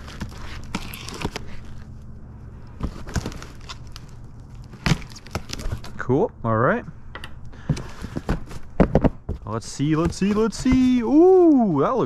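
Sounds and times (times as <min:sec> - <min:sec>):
knife slitting packing tape: 0:00.0 - 0:01.8
cardboard scraping and rustling: 0:00.0 - 0:02.0, 0:02.6 - 0:06.0, 0:07.6 - 0:12.0
box knocks and clicks: 0:07.7 - 0:11.2.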